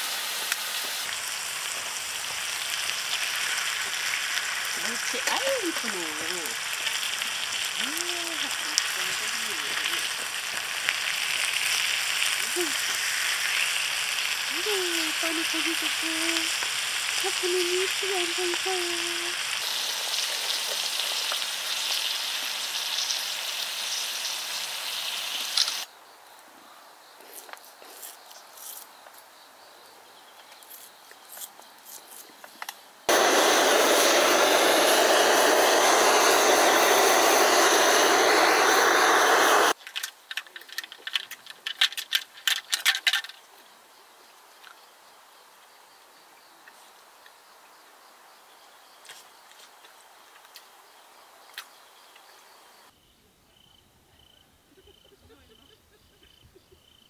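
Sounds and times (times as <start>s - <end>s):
gas torch flame hissing: 0.0s - 25.9s, 33.1s - 39.8s
steak sizzling on a griddle: 0.0s - 25.9s, 33.1s - 39.8s
sharp crackles: 0.1s - 25.9s.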